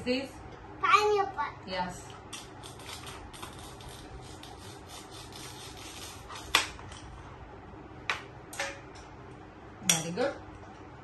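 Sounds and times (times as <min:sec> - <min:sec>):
toy knife rasping and scraping: 0:02.6 - 0:06.6.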